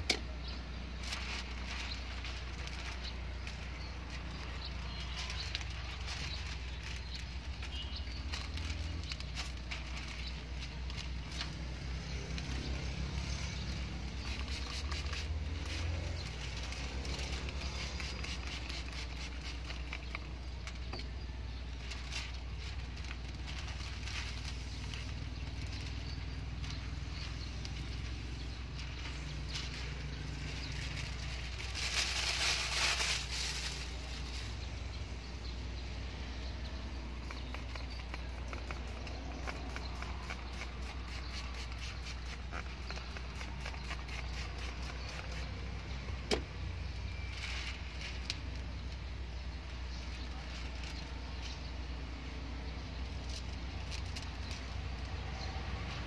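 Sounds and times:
plastic film crinkling: 0.0s - 35.2s, 36.8s - 49.1s, 49.7s - 51.8s, 53.1s - 55.3s
spray bottle hissing: 14.2s - 15.4s.

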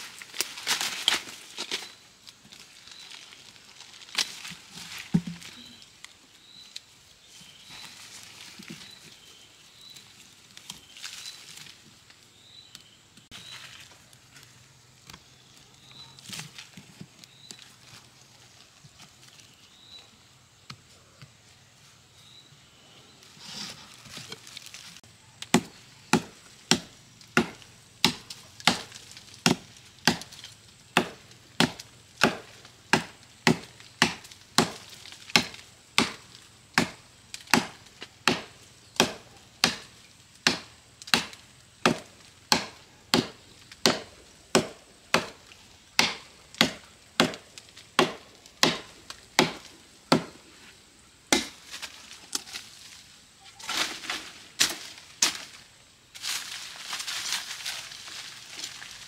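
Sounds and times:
hoe chopping into soil and roots: 25.4s - 50.4s, 51.3s - 52.6s.

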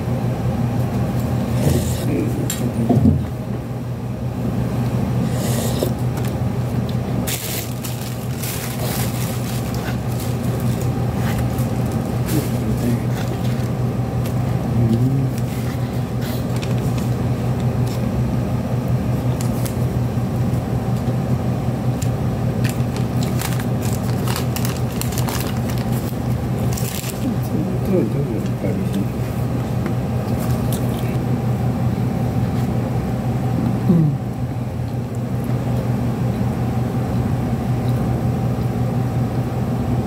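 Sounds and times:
steady low hum: 0.0s - 40.0s
person chewing: 5.2s - 18.1s, 22.6s - 27.4s, 30.2s - 31.2s.

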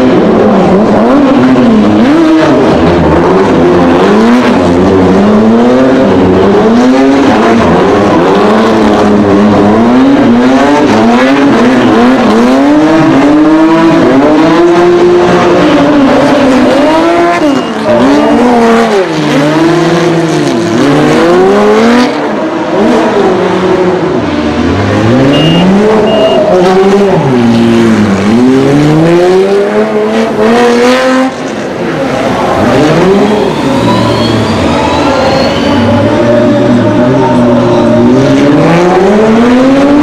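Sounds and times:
car engine revving: 0.0s - 40.0s
tyres squealing: 32.0s - 39.0s.

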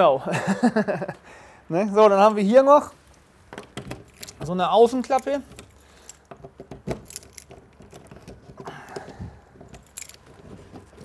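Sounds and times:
key in lock clicks and knocks: 3.5s - 11.0s
keys jangling: 3.6s - 11.0s.

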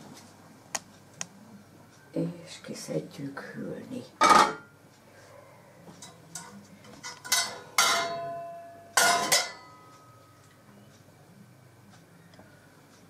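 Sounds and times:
pot lid and dishes clanking: 4.2s - 4.7s, 6.0s - 9.8s
tongs clinking: 6.0s - 10.6s.

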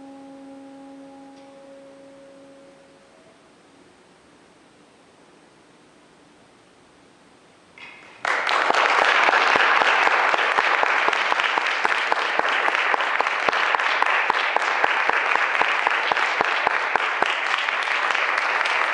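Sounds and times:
audience applauding: 8.1s - 18.9s.

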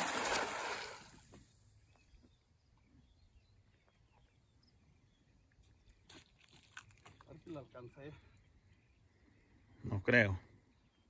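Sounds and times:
net splashing onto water: 0.0s - 1.2s.

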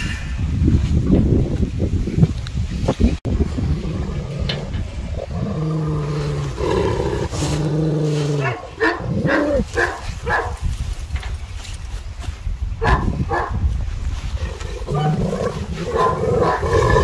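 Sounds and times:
dogs barking: 8.4s - 10.6s, 12.8s - 13.6s, 14.9s - 17.0s.

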